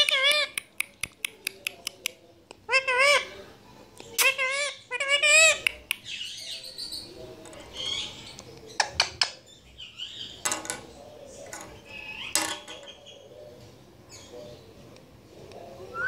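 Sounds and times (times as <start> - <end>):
parakeet chattering: 0.0 - 1.0, 4.1 - 6.4.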